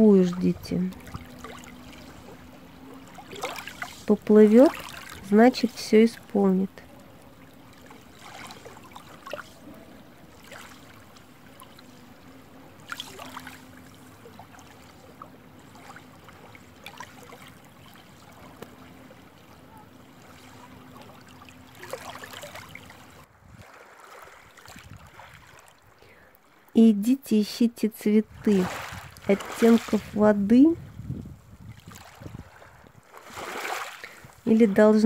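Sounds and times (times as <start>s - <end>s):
steady low hum: 0.0s - 23.4s
slow river water rippling: 0.0s - 35.0s.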